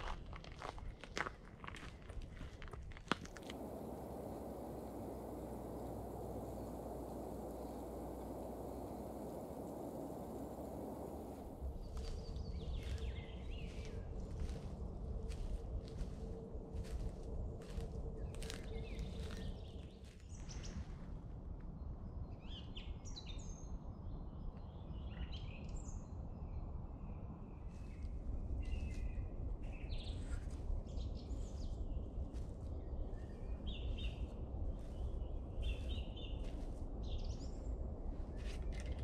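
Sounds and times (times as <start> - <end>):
steady low background noise: 3.3 - 39.0
small birds chirping: 3.4 - 16.2, 17.6 - 20.8, 27.6 - 39.0.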